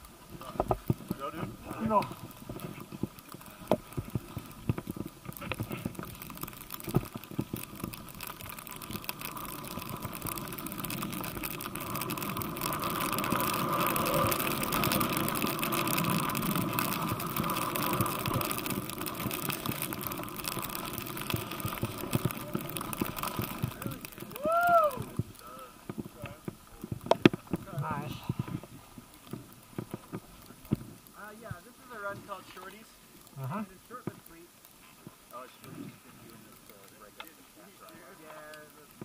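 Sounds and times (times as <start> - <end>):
skis hissing over snow: 0.2 - 26.4.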